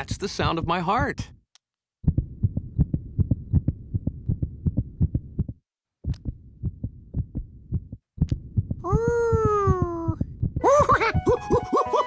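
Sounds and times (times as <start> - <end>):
heartbeat through stethoscope: 2.0 - 11.4.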